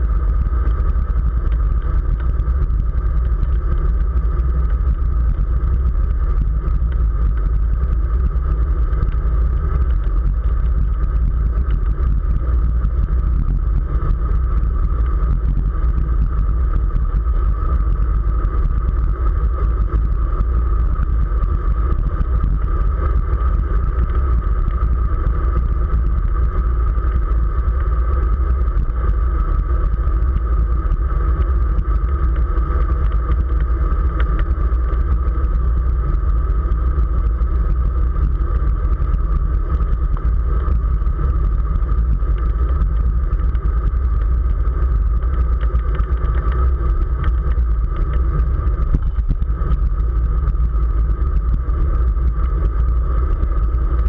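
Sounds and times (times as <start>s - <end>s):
steady hum: 0.0s - 54.0s
wind rumble on microphone: 0.0s - 54.0s.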